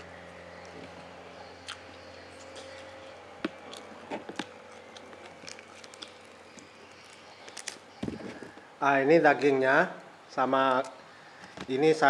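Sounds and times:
person chewing with mouth clicks: 1.6s - 8.4s.

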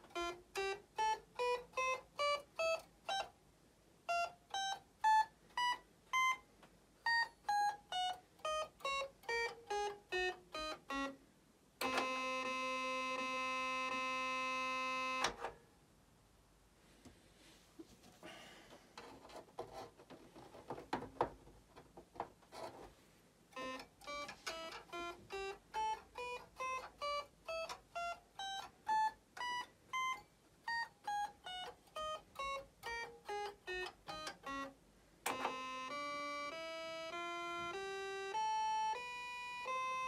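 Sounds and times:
toy electronic organ notes: 0.0s - 3.4s, 4.0s - 15.5s, 23.5s - 40.0s.

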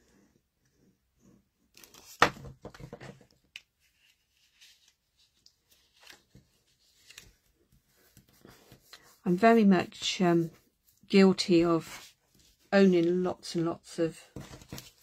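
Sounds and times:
paper rustling and sliding: 3.8s - 10.0s.

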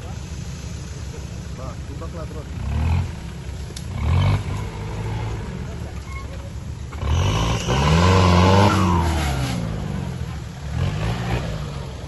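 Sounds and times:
suv engine revving hard: 3.9s - 5.7s, 6.9s - 12.0s.

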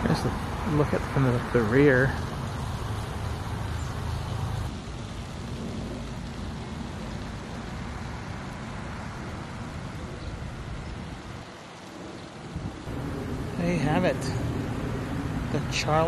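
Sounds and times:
low rumble: 12.6s - 16.0s.

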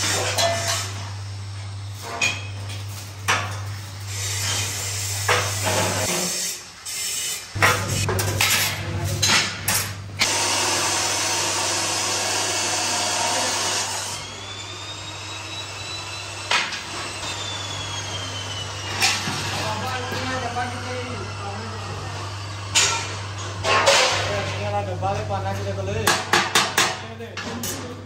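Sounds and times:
power tool running: 3.3s - 8.2s, 10.2s - 25.9s.

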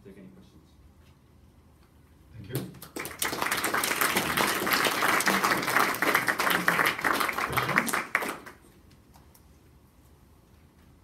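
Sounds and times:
small audience applauding: 2.5s - 8.7s.

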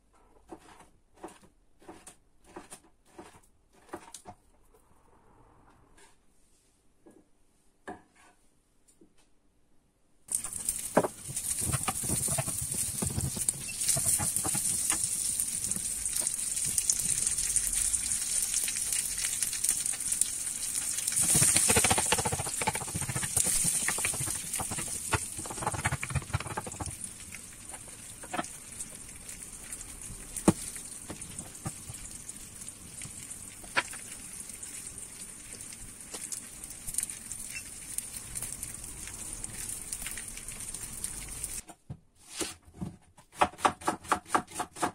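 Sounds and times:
wooden spoon scraping a wok: 0.2s - 4.4s, 8.1s - 8.4s, 10.7s - 15.1s, 20.8s - 27.0s
bacon sizzling and crackling: 10.3s - 41.6s
fat popping: 21.1s - 27.1s.

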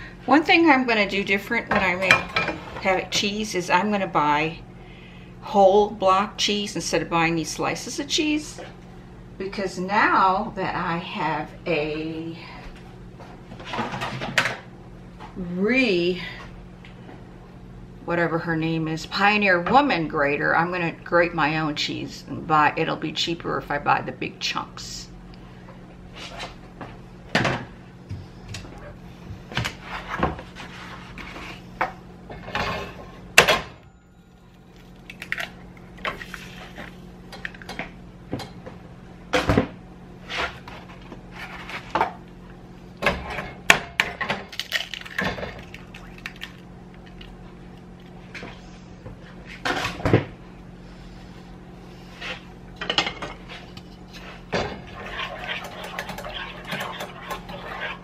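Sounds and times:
steady low hum: 0.0s - 58.0s
eggs cracked into a frying pan: 44.5s - 47.2s.

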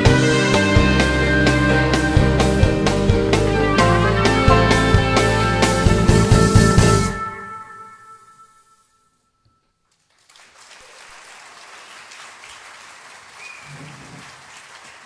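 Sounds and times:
audience applauding: 9.9s - 15.0s.

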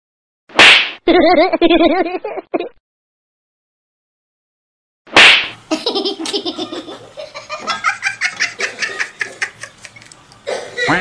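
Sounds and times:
person laughing hard: 1.1s - 2.7s, 5.7s - 11.0s.

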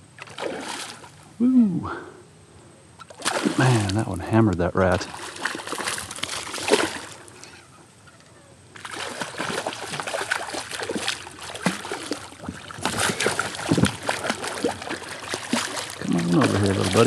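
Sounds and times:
fish splashing in water: 0.2s - 1.1s, 3.1s - 4.0s, 5.0s - 7.3s, 8.8s - 17.0s.

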